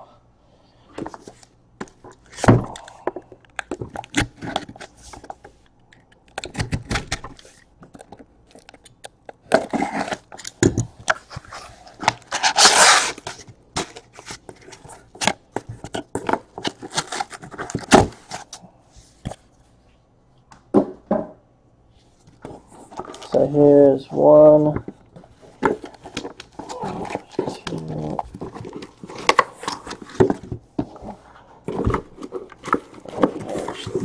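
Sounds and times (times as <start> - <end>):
cardboard tearing: 11.4 - 14.4.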